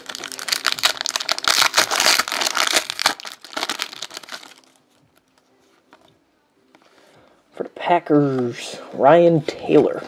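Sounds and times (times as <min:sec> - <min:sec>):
wrapper crinkling: 0:00.0 - 0:05.4.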